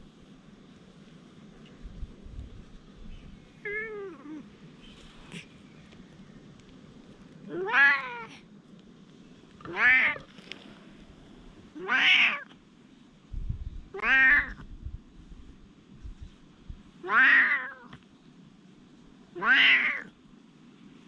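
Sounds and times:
cat meowing: 3.6s - 4.4s, 7.5s - 8.4s, 9.6s - 10.2s, 11.8s - 12.5s, 13.9s - 14.6s, 17.0s - 18.0s, 19.4s - 20.1s.

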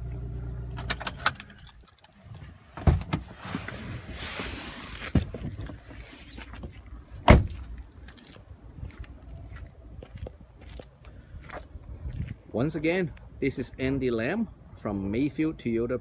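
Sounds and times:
rustling of person climbing out: 1.7s - 8.4s
truck door opening clunk: 7.2s - 7.6s
truck door shutting thump: 7.2s - 7.6s.

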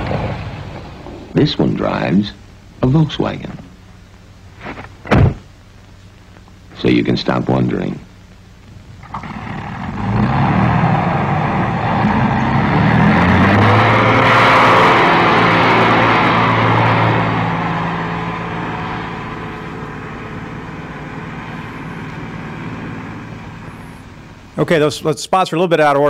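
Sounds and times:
truck engine revving: 0.0s - 1.4s, 9.0s - 24.6s.

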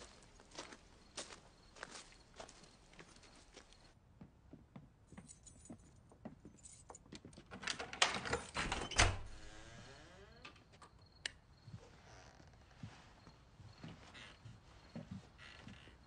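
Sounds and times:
keys jangling in a door lock: 6.5s - 9.3s
door being pushed open: 7.6s - 9.9s.

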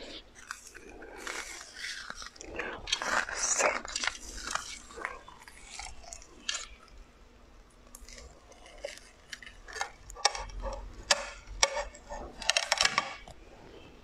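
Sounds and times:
silicone mold squishing: 0.0s - 14.0s.

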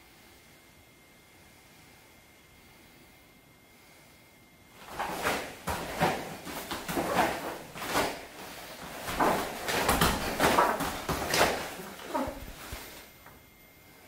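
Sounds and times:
uniform snapping and rustling: 4.8s - 13.0s
bare feet on mat: 4.8s - 13.1s.

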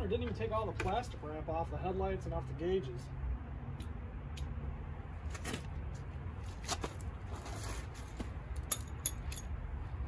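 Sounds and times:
small metallic clinks: 8.6s - 9.6s.

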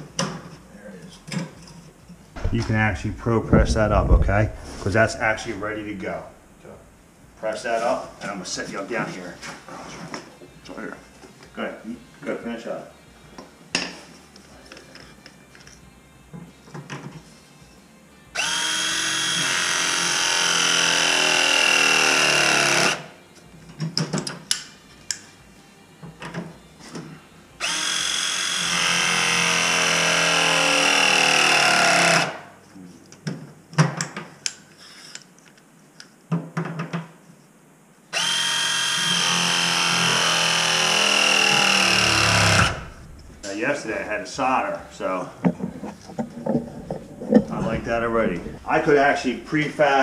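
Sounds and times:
press tool motor whine: 18.4s - 23.0s, 38.2s - 43.4s.

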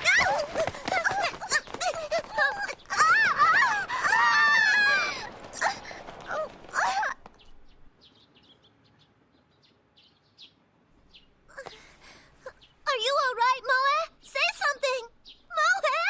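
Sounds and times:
cartoon girls screaming: 0.0s - 7.2s
faint bird chirps: 7.3s - 16.0s.

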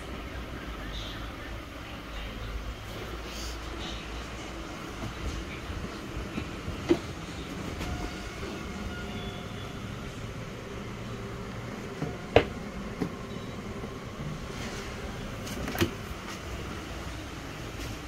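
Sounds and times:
steady background noise: 0.0s - 18.0s.

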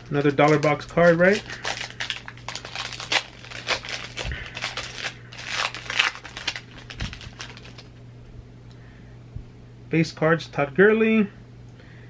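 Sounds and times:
plastic wrapper crinkling: 0.0s - 8.0s.

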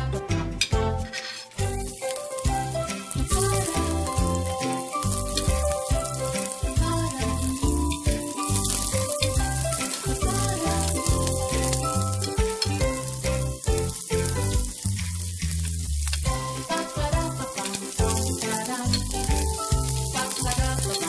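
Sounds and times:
background music with bass: 0.0s - 21.0s
onion sizzling in hot oil: 1.5s - 21.0s.

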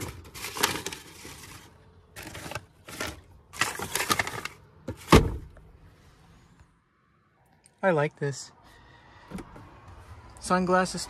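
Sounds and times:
paper booklet rustling and clicking: 0.0s - 4.6s.

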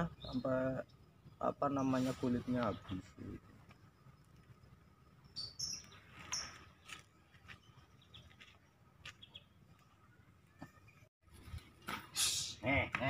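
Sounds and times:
high bird chirps: 5.1s - 8.5s, 9.1s - 11.1s.

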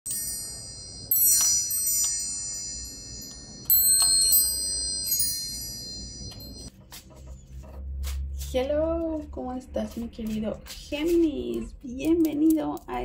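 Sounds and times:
chimes ringing: 0.1s - 6.7s.

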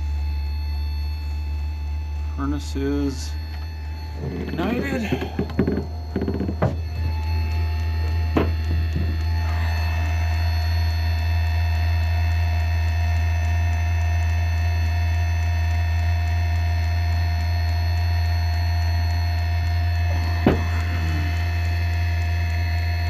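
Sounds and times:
furnace blower humming: 0.0s - 23.0s
steady tones: 1.8s - 11.6s, 19.7s - 23.0s.

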